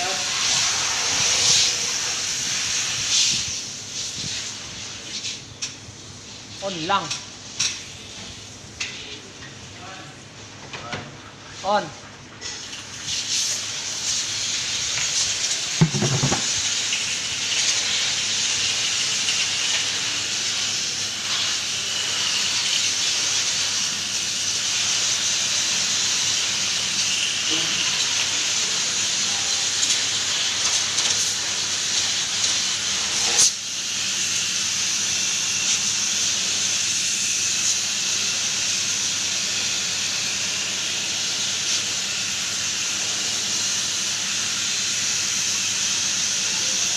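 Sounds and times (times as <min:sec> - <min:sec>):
pressure washer spray hissing: 0:00.0 - 0:05.5, 0:12.6 - 0:46.9
short knock: 0:15.8 - 0:16.5.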